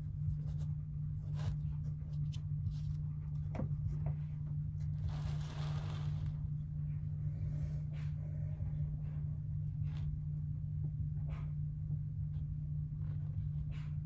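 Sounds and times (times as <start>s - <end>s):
low hum: 0.0s - 14.0s
plastic bag rustling: 5.0s - 6.5s.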